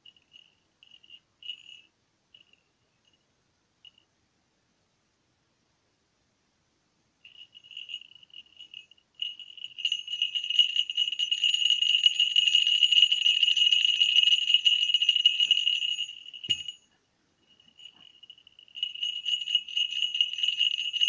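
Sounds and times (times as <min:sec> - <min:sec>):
small bell jingling: 0:00.0 - 0:04.1, 0:07.2 - 0:21.0.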